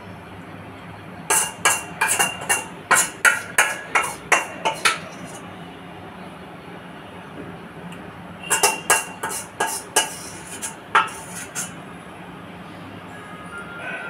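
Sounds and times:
metal spoon clinking on bowl: 1.3 - 5.4, 8.5 - 11.7.

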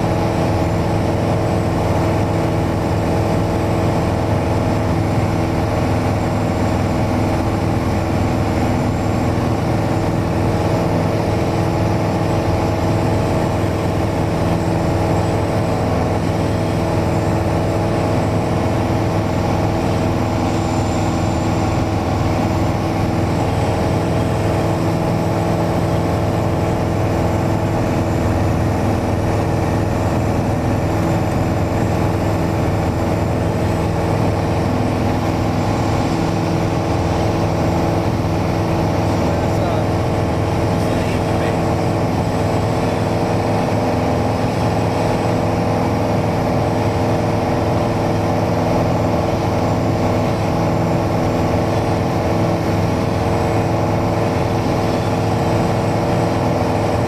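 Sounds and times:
airplane engine and propeller droning: 0.0 - 57.0.

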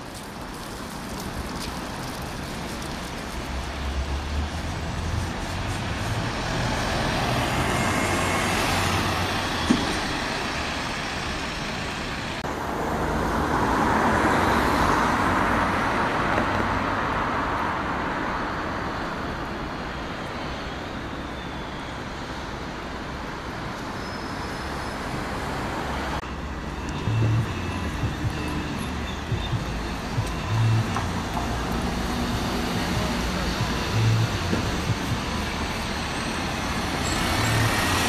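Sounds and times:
vehicle passing: 25.5 - 38.0
bus engine running: 26.0 - 38.0.

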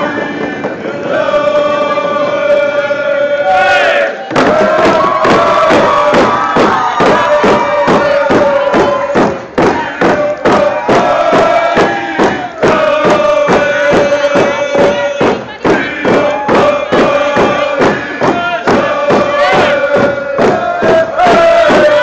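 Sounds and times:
group chanting in unison: 0.0 - 22.0
fast even drumbeat: 4.3 - 22.0.

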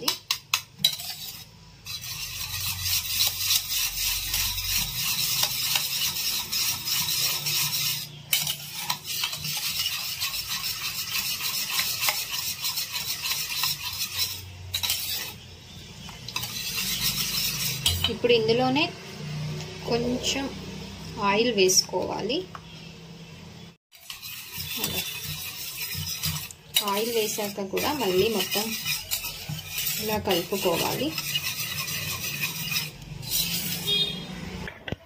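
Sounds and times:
whisk clicking in steel bowl: 2.0 - 15.2, 24.0 - 34.0.

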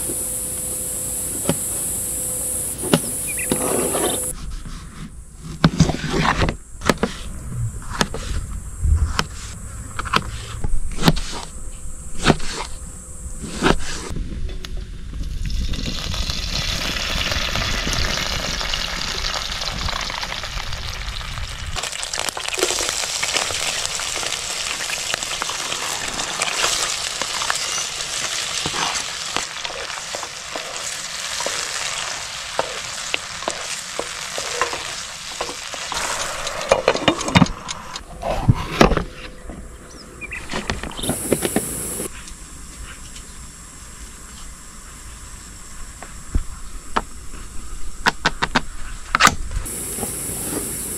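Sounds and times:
oil sizzling in frying pan: 15.9 - 36.6.

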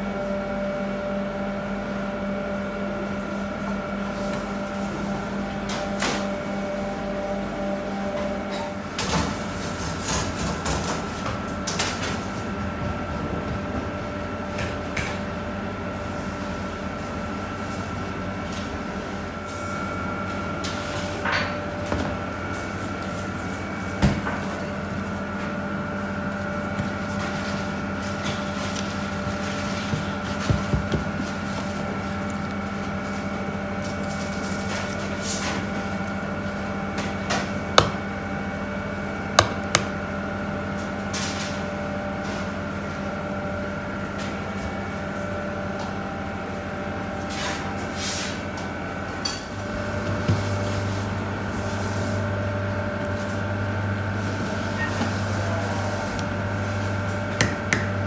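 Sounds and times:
kitchen machinery hum: 0.0 - 58.0.

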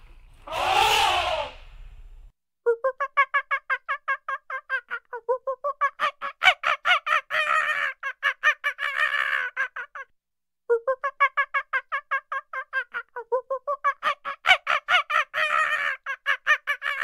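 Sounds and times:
animal call of short pitched notes: 0.4 - 1.8.

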